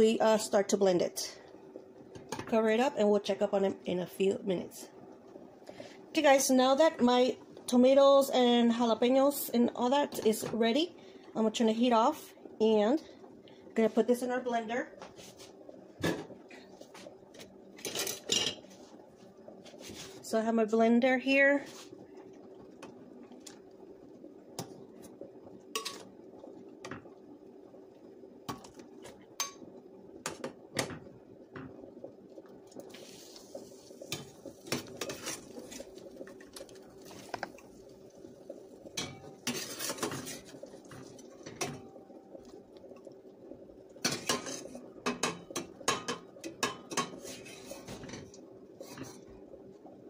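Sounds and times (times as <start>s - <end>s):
faint steady hum: 0.0s - 50.0s
water splashing and pouring: 30.6s - 42.7s
metal ladle scraping saucepan: 34.9s - 35.9s, 39.0s - 40.5s.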